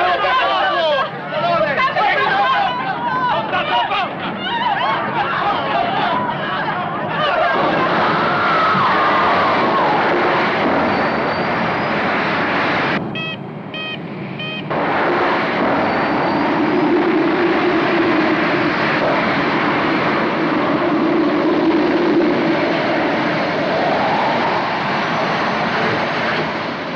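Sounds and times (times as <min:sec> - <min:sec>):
rush of air: 0:07.5 - 0:26.9
short beeps: 0:13.1 - 0:14.7.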